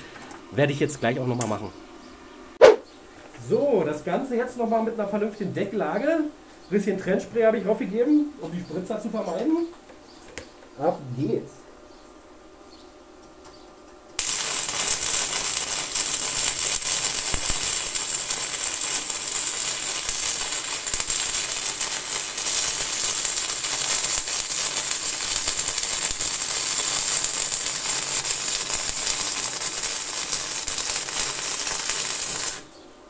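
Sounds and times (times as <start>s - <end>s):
welding arc crackling hiss: 14.1s - 32.7s.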